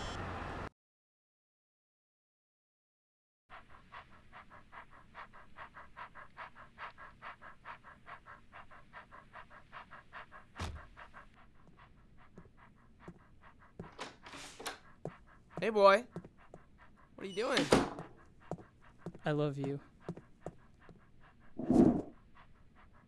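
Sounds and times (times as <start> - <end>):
cartoon dog panting: 3.5 - 23.0
thump: 10.6 - 11.0
brief scraping: 21.6 - 22.1.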